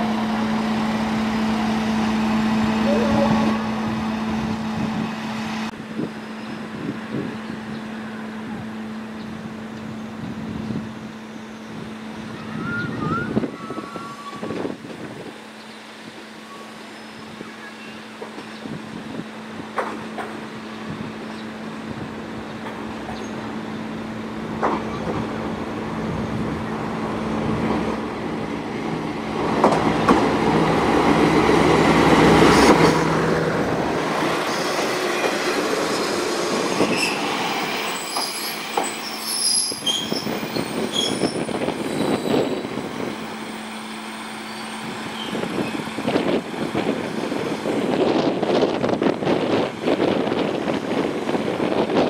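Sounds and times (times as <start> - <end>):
diesel railcar engine: 0.0 - 52.0
wheel and brake squeal: 36.8 - 42.6, 44.4 - 45.8.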